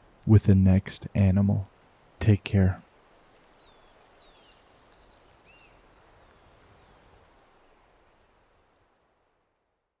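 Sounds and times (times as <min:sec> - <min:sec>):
steady outdoor hiss: 0:00.0 - 0:10.0
bird chirps: 0:01.5 - 0:08.1.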